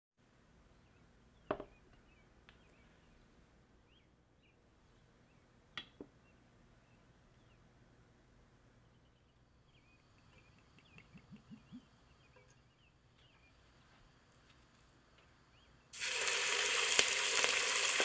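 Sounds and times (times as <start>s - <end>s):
faint bird chirps: 0.6s - 5.6s, 8.6s - 14.1s, 15.2s - 15.9s.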